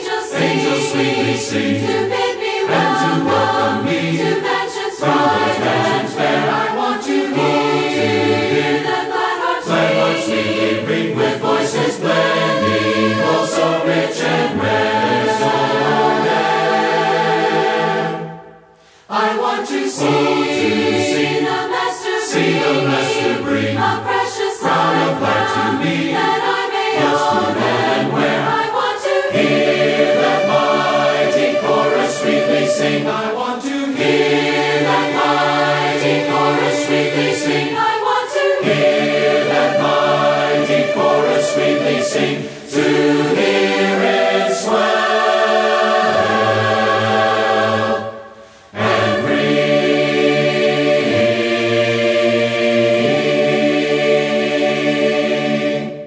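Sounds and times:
choir singing a hymn: 0.0s - 56.0s.

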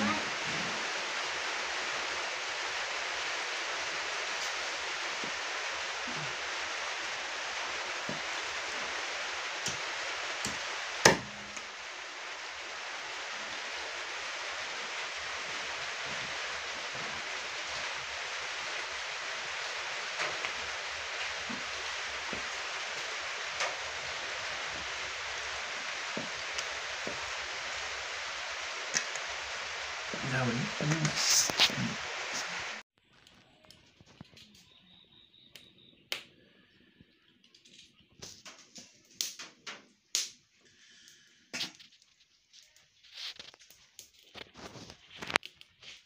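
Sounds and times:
steady hiss: 0.0s - 32.8s.

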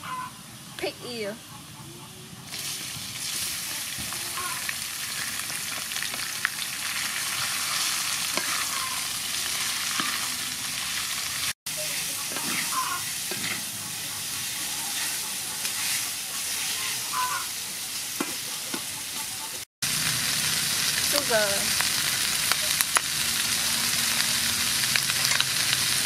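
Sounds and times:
meat sizzling in oil: 2.5s - 19.1s, 19.8s - 26.0s
wooden spatula scraping wok: 7.2s - 11.1s, 11.9s - 17.1s.

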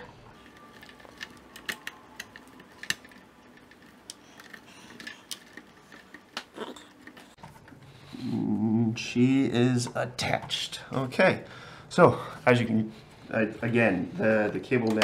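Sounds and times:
cable bundles rustling: 0.3s - 7.9s.

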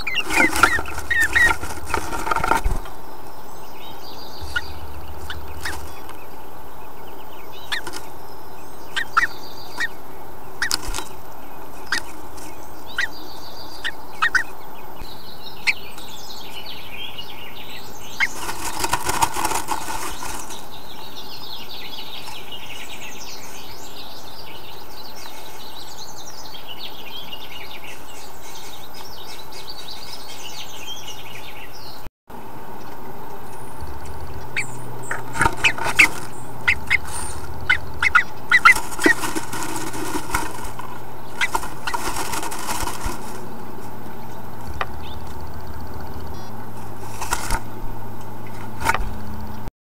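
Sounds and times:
wing flutter: 0.0s - 15.1s, 17.7s - 26.5s, 32.6s - 49.7s
faint bird chirps: 0.0s - 32.1s, 32.7s - 47.0s
bird feet tapping in nest box: 0.1s - 3.0s, 18.2s - 20.6s, 33.8s - 45.9s, 46.8s - 49.1s.

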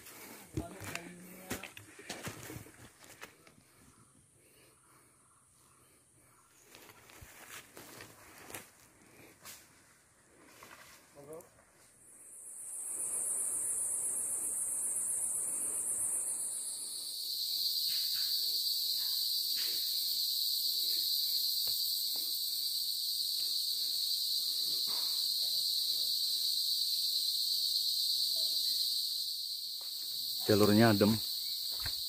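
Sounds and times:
footsteps on dry leaves and twigs: 0.0s - 3.5s, 6.6s - 8.9s
high-pitched insect chorus: 0.0s - 32.0s.

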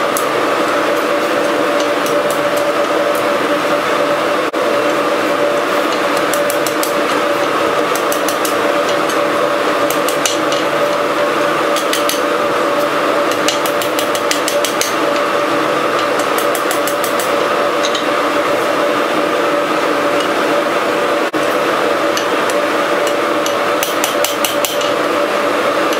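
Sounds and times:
loud machine drone: 0.0s - 25.9s
hammer striking steel on anvil: 5.9s - 7.1s, 7.8s - 11.0s, 11.7s - 12.3s, 13.3s - 15.2s, 16.0s - 18.1s, 23.0s - 25.0s.

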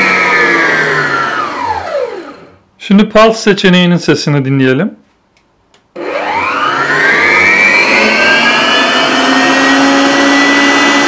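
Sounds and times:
stand mixer motor whining: 0.0s - 2.6s, 6.0s - 11.0s.

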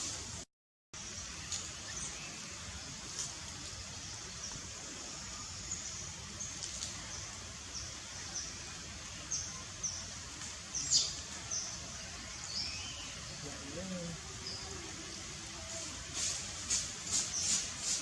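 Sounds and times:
outdoor hiss: 0.0s - 18.0s
small birds chirping: 1.0s - 18.0s.

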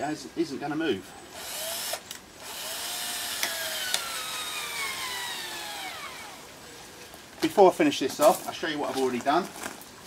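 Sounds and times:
power drill driving a screw: 1.4s - 6.4s
sharp clicks: 3.4s - 4.1s.

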